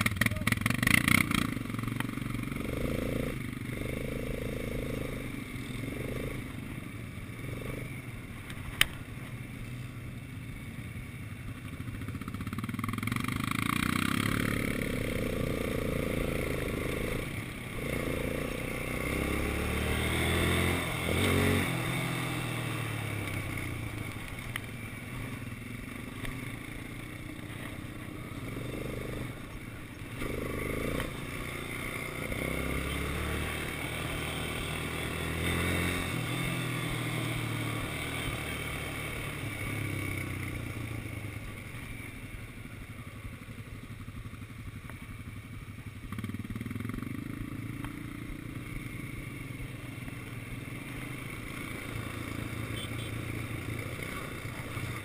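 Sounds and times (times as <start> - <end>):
quad bike engine revving: 0.0 - 6.6, 12.0 - 25.4, 26.1 - 42.0, 46.1 - 49.3, 50.7 - 55.0.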